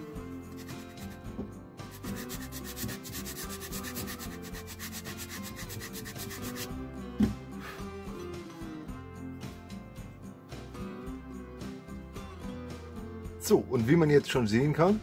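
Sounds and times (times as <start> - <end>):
sanding block rubbing wood: 0.5 - 1.2, 1.9 - 6.7
knock: 1.3 - 1.6, 7.2 - 7.4.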